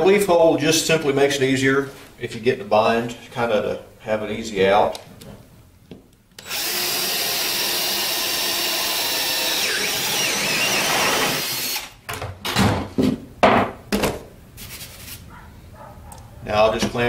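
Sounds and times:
cordless drill boring through wood: 0:06.4 - 0:12.0.

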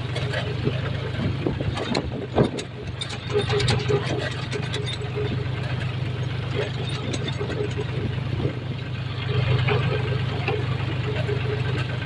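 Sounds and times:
rattles and knocks: 0:00.0 - 0:08.6
tractor engine droning: 0:00.0 - 0:12.0.

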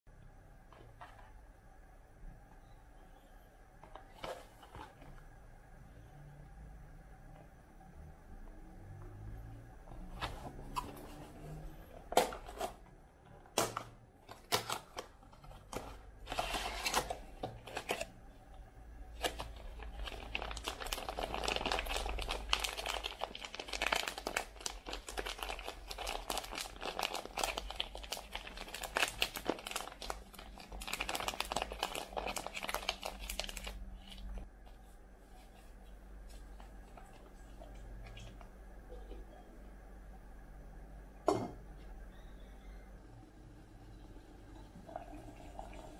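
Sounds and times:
foil pouch crinkling: 0:19.1 - 0:34.4.

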